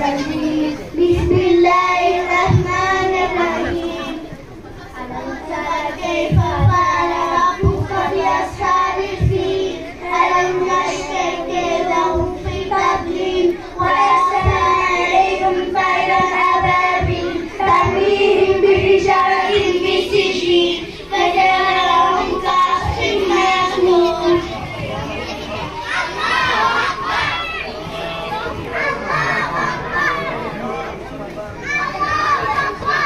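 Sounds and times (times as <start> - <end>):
child chanting recitation: 0.0 - 33.0
low thumps: 1.0 - 3.2.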